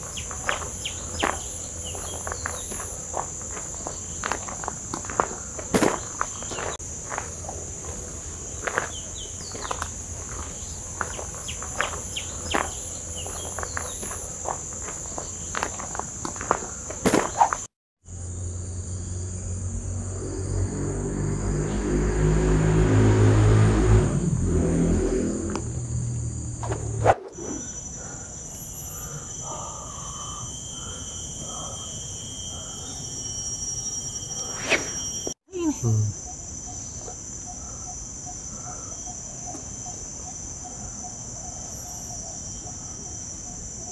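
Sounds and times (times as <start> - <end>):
footsteps on gravel: 0.0 - 17.7
insects droning: 0.0 - 43.9.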